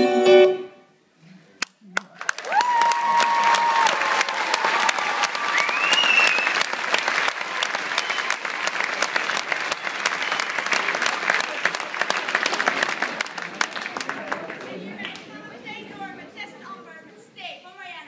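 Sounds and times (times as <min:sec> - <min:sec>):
audience applauding: 0:01.6 - 0:15.3
crowd calling out: 0:02.4 - 0:08.8.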